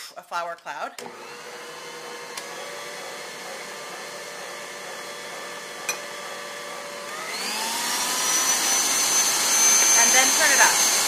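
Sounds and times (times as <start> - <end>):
stand mixer whining: 1.0 - 11.0.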